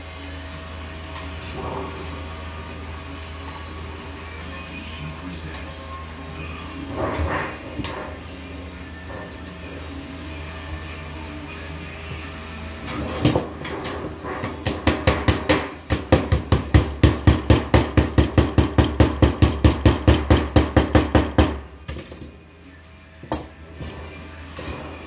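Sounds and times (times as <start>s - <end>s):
hammer striking sheet metal: 13.2s - 21.6s.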